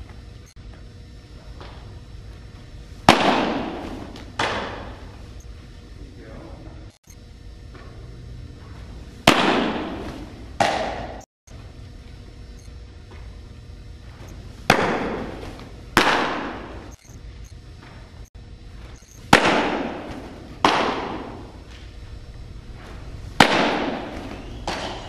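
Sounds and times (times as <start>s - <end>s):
baseball smacking into mitt: 3.0s - 5.0s, 9.3s - 11.2s, 14.7s - 16.7s, 19.3s - 21.8s, 23.3s - 25.0s.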